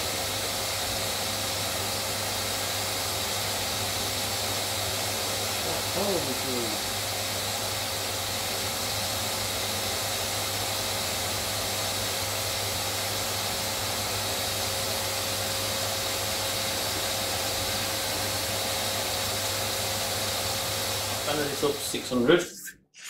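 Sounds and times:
wood lathe whirring: 1.7s - 22.0s.

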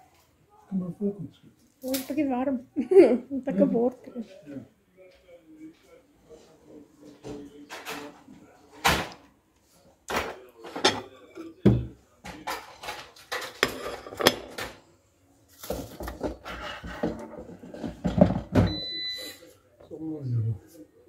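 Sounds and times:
plates clinking: 10.1s - 14.8s.

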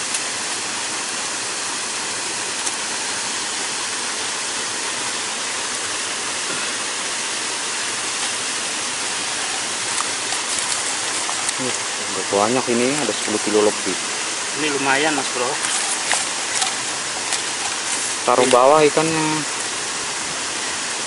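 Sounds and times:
small waterfall rushing: 0.0s - 21.0s.

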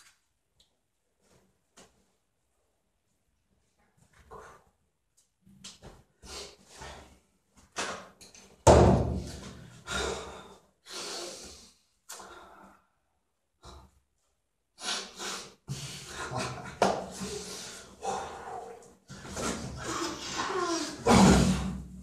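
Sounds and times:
person sniffing and snorting: 14.8s - 18.6s.

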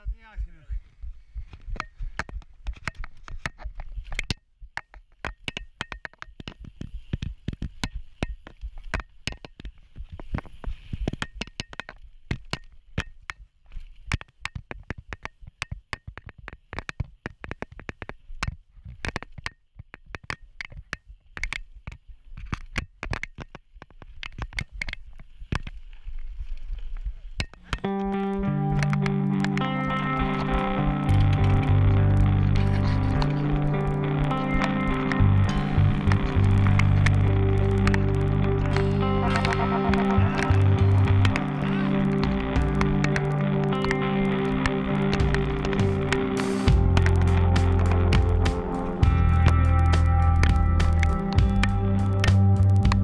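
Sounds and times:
bike knocking and rattling: 1.4s - 13.5s.

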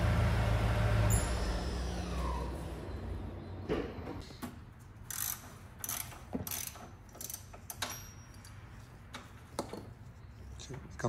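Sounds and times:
hand tools clicking and knocking: 5.1s - 9.9s.

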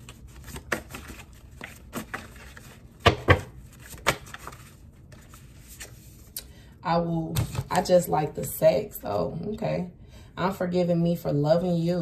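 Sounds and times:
cards tapping and clicking: 0.1s - 4.6s.

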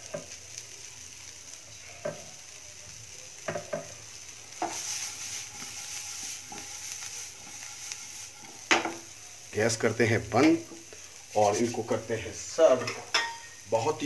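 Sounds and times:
potatoes sizzling in a pan: 0.0s - 14.0s.

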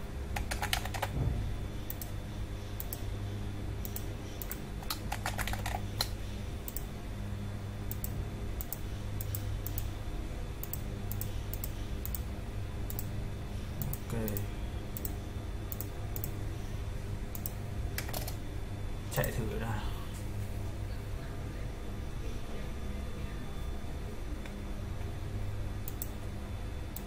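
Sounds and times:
low steady hum: 0.0s - 27.0s
keyboard typing clicks: 0.4s - 1.2s, 1.9s - 2.2s, 3.8s - 6.9s, 7.9s - 9.9s, 10.6s - 12.3s, 13.8s - 16.4s, 17.3s - 18.4s, 25.8s - 26.2s.

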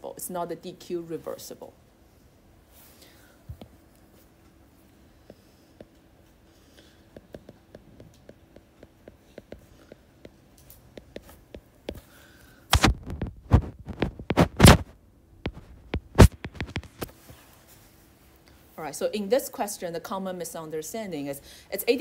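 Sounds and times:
stylus tapping on tablet screen: 15.5s - 17.1s.

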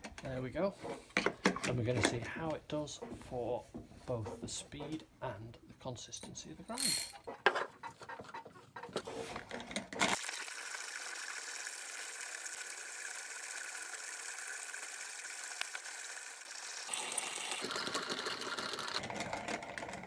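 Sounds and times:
clinks and knocks: 0.0s - 3.2s, 6.2s - 10.2s
hand coffee grinder grinding: 8.0s - 20.0s.

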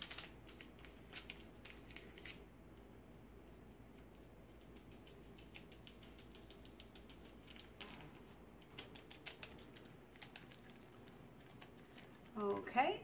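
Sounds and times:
foil packet crinkling: 0.0s - 2.5s, 5.4s - 12.8s.

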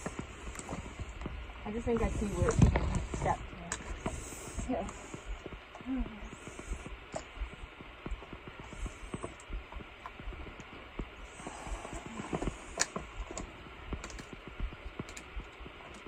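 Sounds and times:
steady hiss: 0.0s - 16.0s
trekking poles clicking on rock: 8.0s - 16.0s.

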